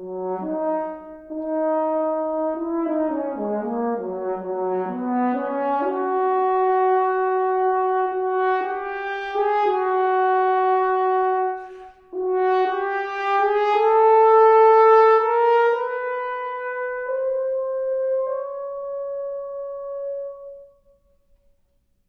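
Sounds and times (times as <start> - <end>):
french horn melody: 0.0 - 21.1
player breath: 11.6 - 12.2.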